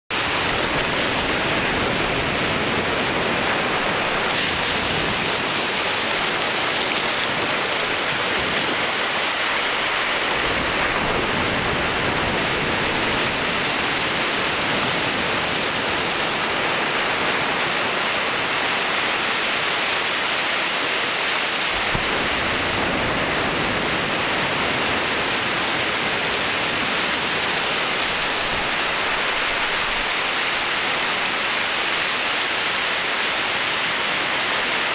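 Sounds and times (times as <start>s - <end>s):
ocean surf breaking on beach: 0.1s - 34.9s.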